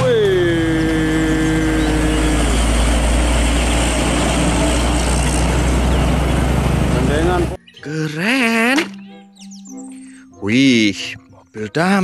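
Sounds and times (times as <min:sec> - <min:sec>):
heavy trucks driving past: 0:00.3 - 0:07.6.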